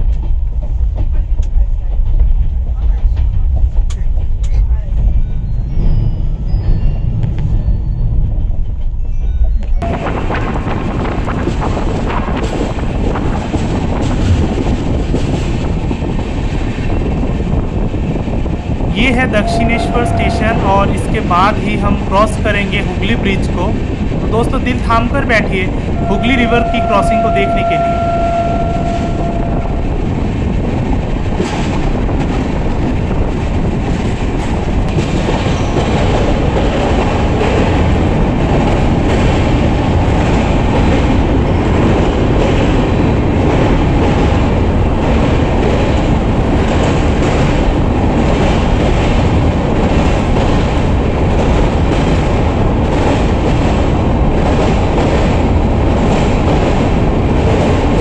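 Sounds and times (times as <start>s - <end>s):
train wheels clickety-clack on rails: 0.0s - 58.0s
steady high tone: 19.0s - 22.4s, 26.0s - 30.2s.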